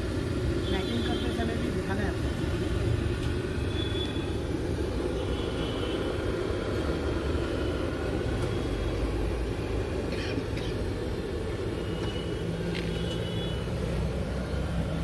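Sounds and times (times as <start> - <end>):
low rumble of street traffic: 0.0 - 15.0.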